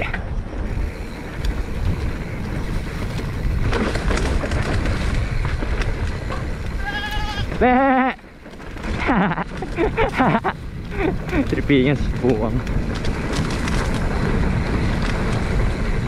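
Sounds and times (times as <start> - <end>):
wind and tyres rumbling: 0.0 - 16.0
quavering bleat-like calls: 6.8 - 8.2.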